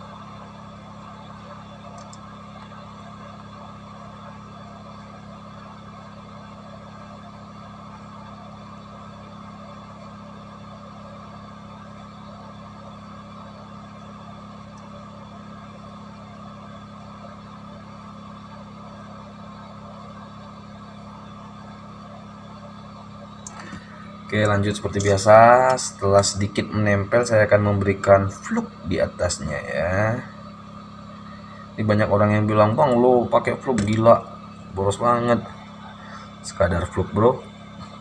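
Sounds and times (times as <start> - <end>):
low fan hum: 0.0 - 38.0
hot air airflow hiss: 23.4 - 38.0.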